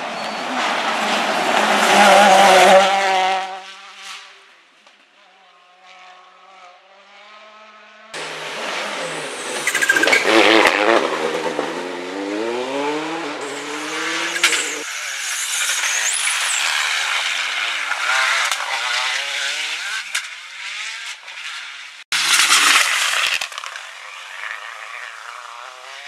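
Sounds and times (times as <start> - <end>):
rally car accelerating hard: 0.0 - 4.3, 5.7 - 26.0
rally car engine speeding away: 0.0 - 4.3, 5.4 - 15.2, 22.9 - 26.0.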